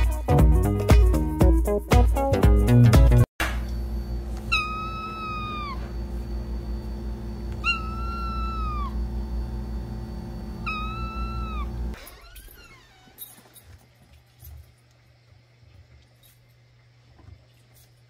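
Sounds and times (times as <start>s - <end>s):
low steady hum: 3.4s - 18.0s
cat meowing: 4.5s - 5.8s, 7.6s - 9.0s, 10.7s - 11.8s.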